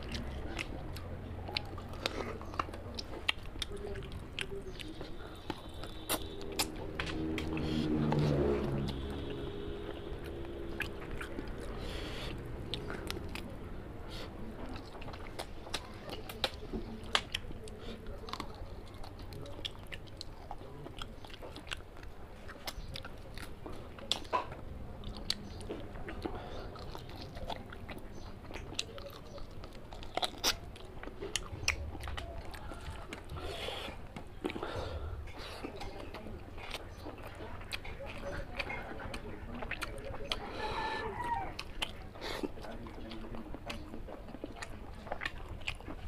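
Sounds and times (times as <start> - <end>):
chewing with wet mouth clicks: 0.0 - 46.0
low pitched sound: 5.8 - 13.9.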